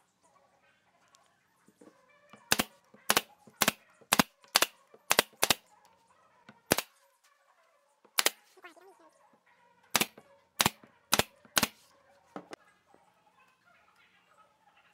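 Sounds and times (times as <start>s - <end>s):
nail gun shots: 2.5s - 5.7s, 6.7s - 6.9s, 8.2s - 8.4s, 9.9s - 11.8s.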